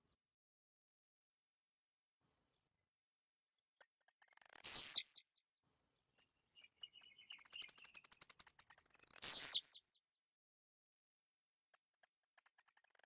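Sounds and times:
bird singing high ticks: 0:03.8 - 0:05.4, 0:06.2 - 0:09.9, 0:11.7 - 0:13.0.

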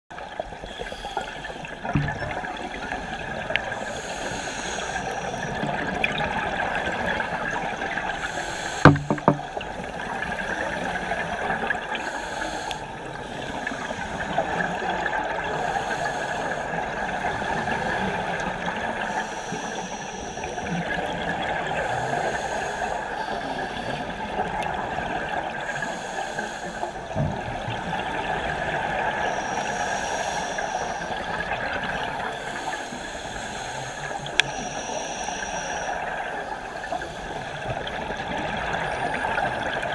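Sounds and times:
regulator breaths hissing: 0:00.5 - 0:05.6, 0:06.6 - 0:09.4, 0:12.0 - 0:14.9, 0:15.5 - 0:21.0, 0:21.7 - 0:24.4, 0:25.6 - 0:27.2, 0:28.9 - 0:38.0
bubbles gurgling: 0:01.7 - 0:04.0, 0:05.0 - 0:08.2, 0:08.8 - 0:12.0
low knocks: 0:08.9 - 0:09.6.

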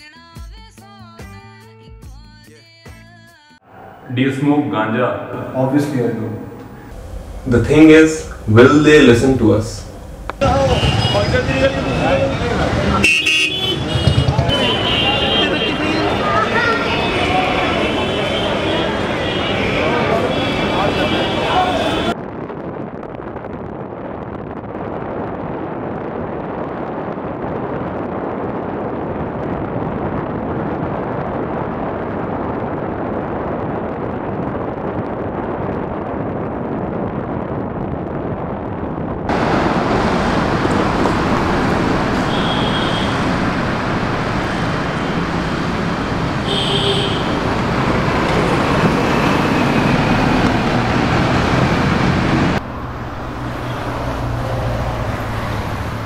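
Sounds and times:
wind rush: 0:03.7 - 0:56.0
motorcycle engine: 0:10.0 - 0:21.2, 0:39.3 - 0:52.8.

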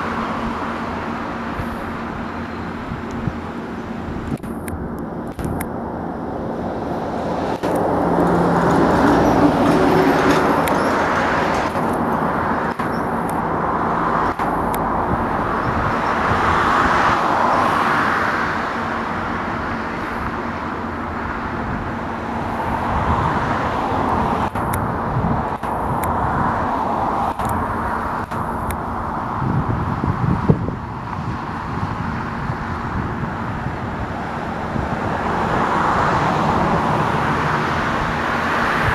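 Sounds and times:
cars passing: 0:00.0 - 0:38.9
low engine hum: 0:00.0 - 0:38.9.

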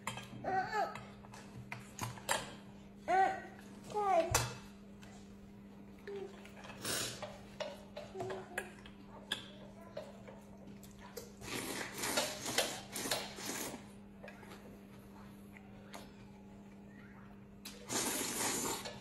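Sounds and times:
man slurping noodles: 0:17.8 - 0:19.0.

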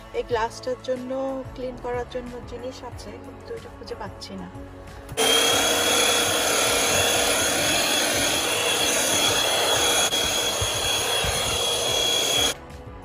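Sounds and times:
handheld vacuum cleaner whining: 0:05.2 - 0:12.6.

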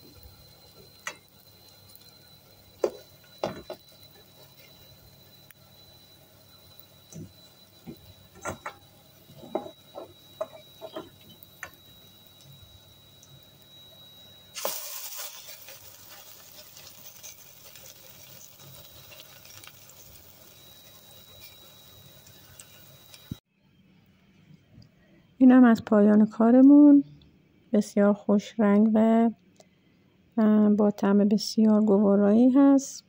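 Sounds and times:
patty sizzling in hot oil: 0:00.0 - 0:13.7, 0:14.5 - 0:23.4.

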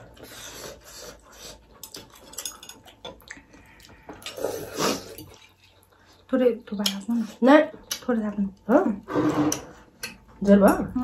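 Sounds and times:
wet slurping: 0:03.2 - 0:06.3.

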